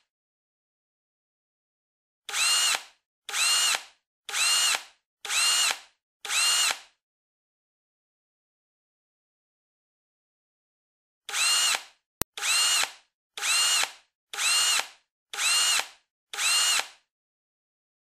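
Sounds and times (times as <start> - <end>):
power drill driving screws: 2.3 - 6.9, 11.3 - 17.0.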